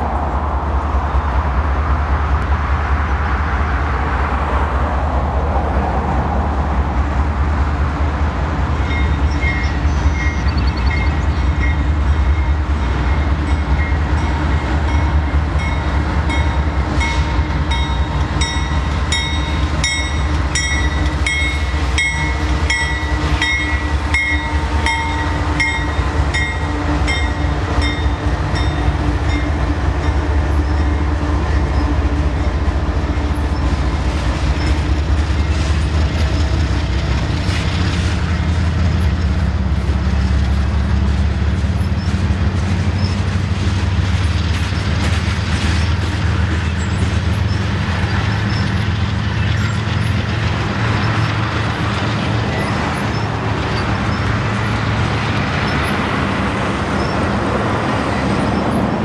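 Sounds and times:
locomotive rumble: 0.0 - 59.0
train cars rolling on rails: 0.0 - 59.0.

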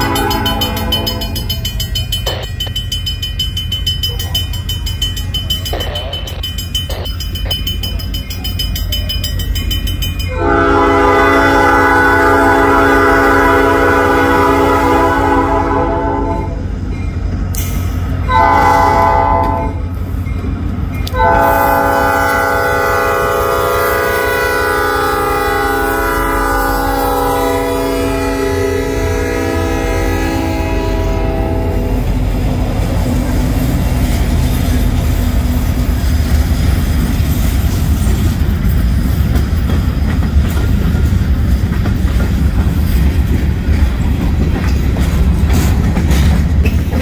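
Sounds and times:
locomotive air horn: 0.0 - 1.6, 10.3 - 16.6, 18.3 - 19.8, 21.1 - 32.1
diesel engine rumble: 0.0 - 9.7.

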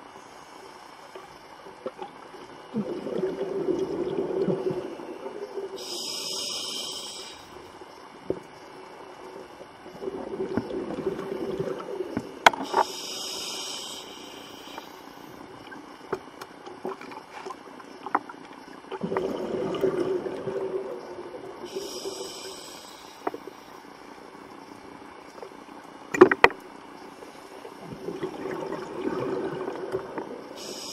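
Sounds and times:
bubbles burbling: 2.7 - 5.4, 10.0 - 12.4, 19.0 - 21.7, 27.8 - 30.5
diver breathing through regulator: 5.8 - 7.6, 12.6 - 15.4, 21.7 - 23.7.

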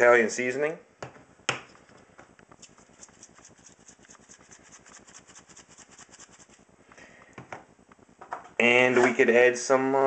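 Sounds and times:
seasoning shaker rattling: 2.5 - 6.6.

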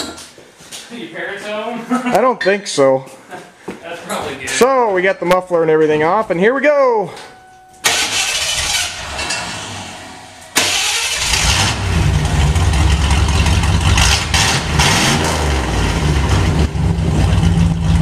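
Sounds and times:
engine starter cranking: 7.8 - 14.8
loud low engine rumble: 7.8 - 18.0.

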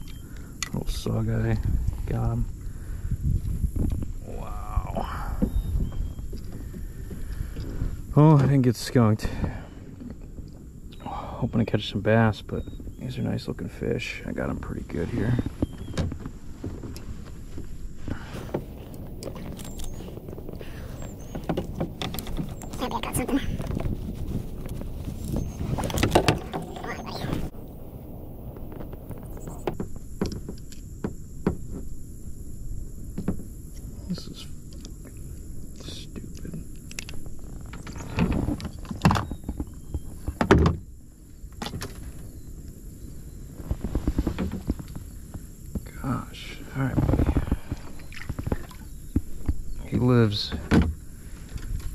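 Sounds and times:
faint bird chirps: 0.0 - 0.5, 4.3 - 7.0, 10.9 - 16.1, 19.2 - 23.6, 25.1 - 29.8, 37.4 - 40.4
steady low rumble: 0.0 - 40.1
dull thumps and knocks in kayak: 5.2 - 8.0, 15.4 - 19.4, 20.3 - 22.8, 23.5 - 27.5, 28.6 - 31.9, 33.1 - 33.5, 37.7 - 40.9, 43.8 - 45.9, 47.2 - 49.8, 50.4 - 51.9
handling clicks and rustles: 15.2 - 27.5.

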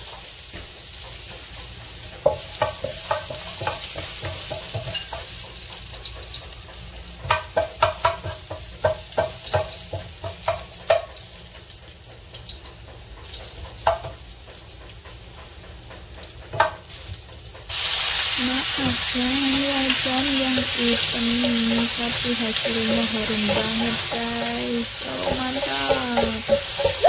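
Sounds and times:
oil sizzling in a wok: 0.0 - 27.0
wooden spatula scraping a pan: 22.6 - 27.0.

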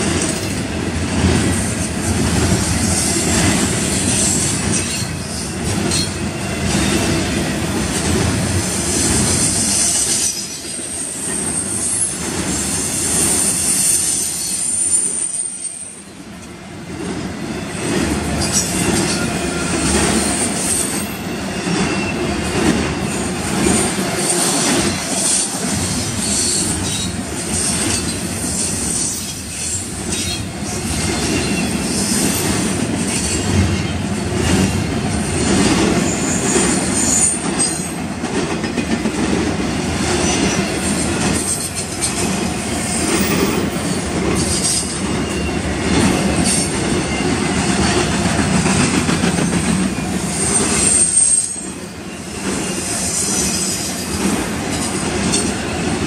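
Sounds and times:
train wheels rumbling on rail: 0.0 - 56.0
high metallic squeals: 18.4 - 23.4, 50.0 - 54.0.

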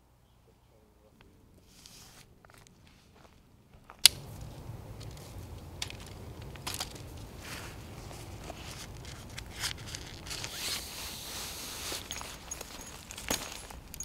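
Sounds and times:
tent pole clicking: 4.0 - 13.4
low rumble: 4.1 - 10.6
nylon fabric rustling: 4.4 - 13.8.

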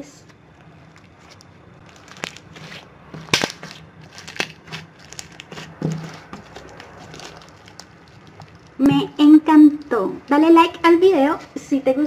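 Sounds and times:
slime crackling and popping: 0.6 - 8.9.

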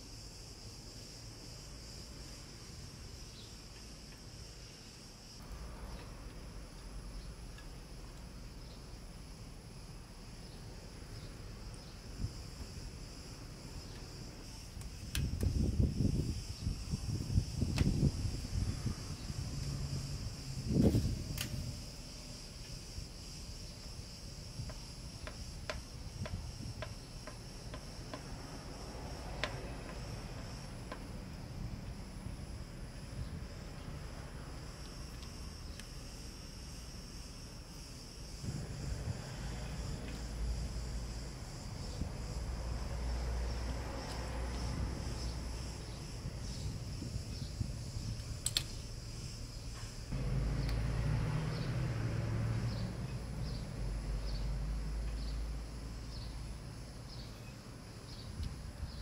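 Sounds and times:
high-pitched insect trill: 0.0 - 59.0
steady low hum: 0.0 - 59.0
sharp light clicks: 14.8 - 15.6, 21.3 - 21.6, 48.2 - 48.8
light clicks of timing belt: 48.2 - 48.8.

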